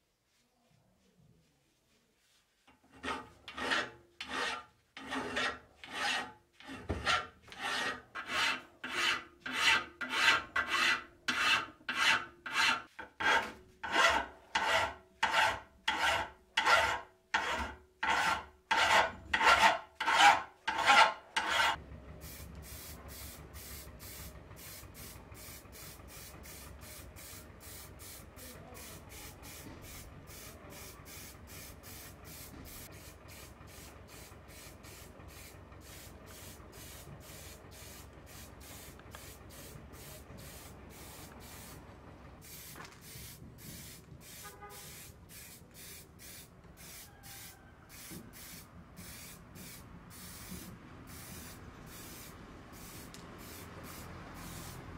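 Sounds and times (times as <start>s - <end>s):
file rasping on metal: 2.8s - 21.8s.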